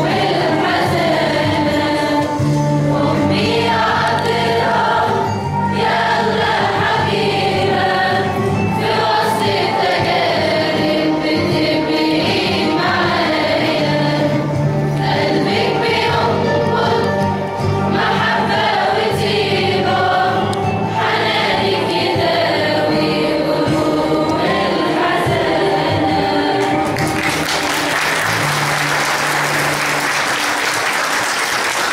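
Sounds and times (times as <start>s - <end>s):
mixed choir singing a hymn: 0.0s - 31.9s
audience applause: 26.8s - 31.9s.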